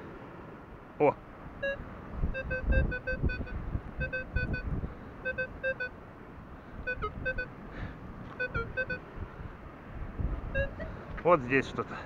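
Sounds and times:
metal detector beeping: 0:01.6 - 0:01.8, 0:02.4 - 0:04.6, 0:05.2 - 0:05.9, 0:06.9 - 0:07.5, 0:08.3 - 0:09.0, 0:10.6 - 0:10.9.

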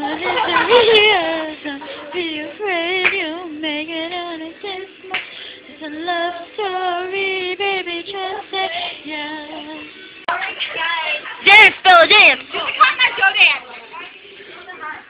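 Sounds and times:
woman singing wordless tune: 0:00.0 - 0:12.5
singer breathing: 0:05.2 - 0:05.8, 0:08.6 - 0:09.1.

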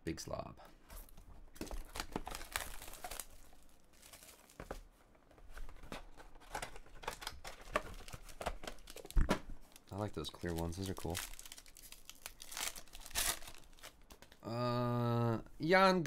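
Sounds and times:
plastic wrap crinkling and tearing: 0:01.6 - 0:04.8, 0:06.1 - 0:14.4.

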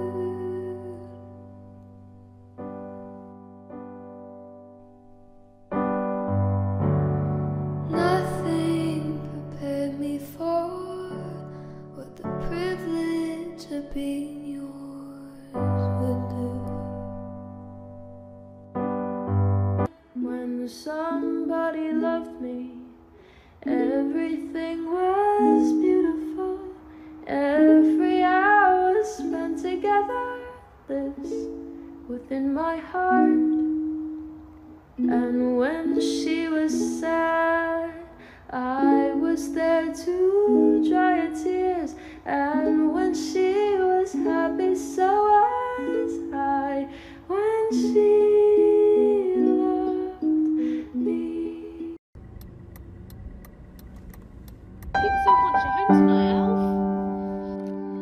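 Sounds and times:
person singing: 0:00.0 - 0:01.5, 0:07.9 - 0:17.2, 0:19.9 - 0:23.0, 0:23.6 - 0:33.9, 0:35.0 - 0:52.0, 0:55.0 - 0:58.0
plucked strings: 0:47.7 - 0:58.0.

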